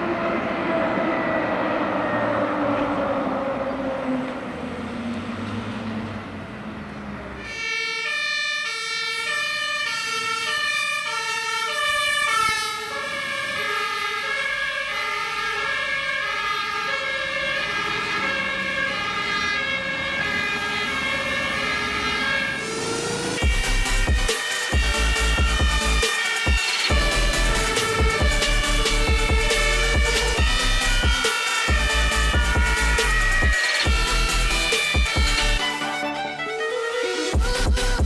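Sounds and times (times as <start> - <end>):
traffic and engine noise: 0.0 - 38.0
two-tone fire engine siren: 0.0 - 38.0.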